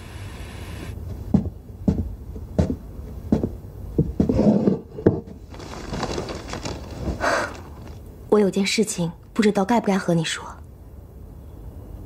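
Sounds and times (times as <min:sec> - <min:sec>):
footsteps on wooden floor: 0:01.2 - 0:08.0
newspaper rustling: 0:05.3 - 0:08.2.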